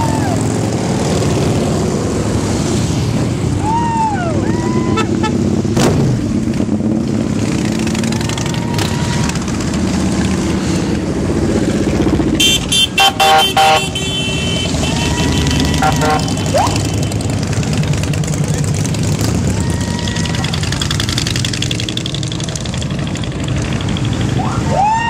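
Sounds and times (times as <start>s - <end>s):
motorcycles rumbling past: 0.0s - 3.5s, 4.5s - 12.7s, 14.6s - 25.0s
vehicle horn honking: 12.4s - 17.2s.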